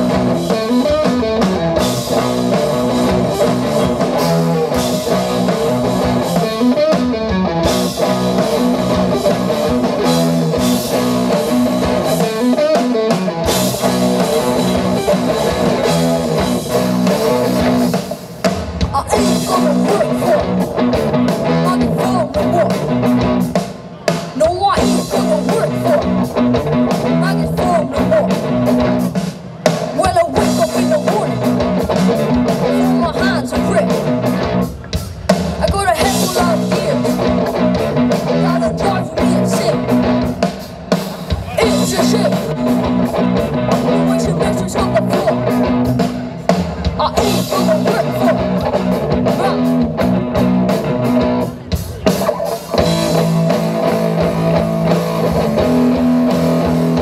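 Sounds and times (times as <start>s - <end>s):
electric bass: 0.0s - 23.6s, 24.4s - 29.3s, 30.0s - 40.6s, 41.3s - 57.0s
drum kit: 0.0s - 57.0s
electric guitar: 0.0s - 57.0s
boy singing lead vocal: 18.9s - 20.7s, 21.4s - 22.9s, 24.4s - 26.3s, 27.0s - 28.4s, 29.9s - 34.1s, 35.6s - 37.3s, 38.3s - 40.2s, 41.4s - 42.8s, 43.8s - 45.8s, 47.0s - 49.8s.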